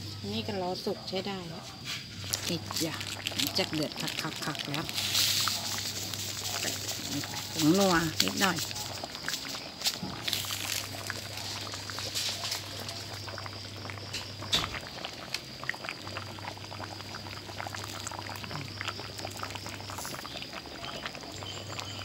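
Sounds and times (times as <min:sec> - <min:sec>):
curry bubbling in a pan: 0:02.0 - 0:22.0.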